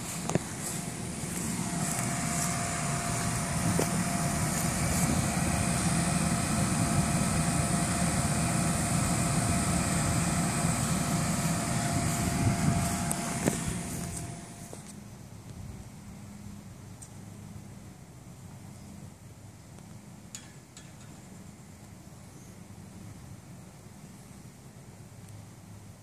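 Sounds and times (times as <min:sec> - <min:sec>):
electric blower fan whining: 0:00.0 - 0:16.6.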